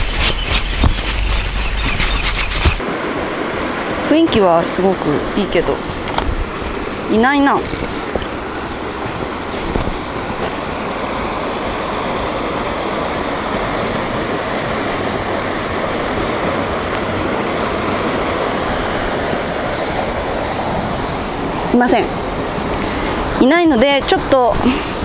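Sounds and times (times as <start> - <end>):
stream rushing over rocks: 0.0 - 23.4.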